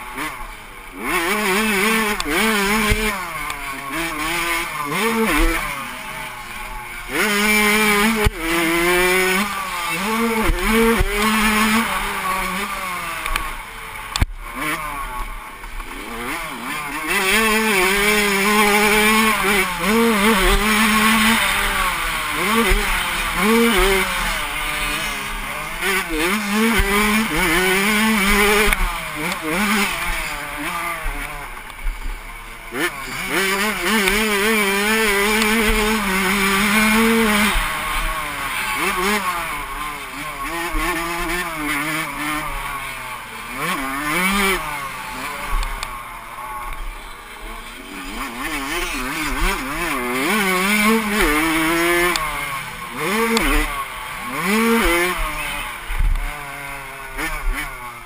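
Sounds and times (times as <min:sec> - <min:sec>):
motocross engine revving: 0:00.0 - 0:58.0.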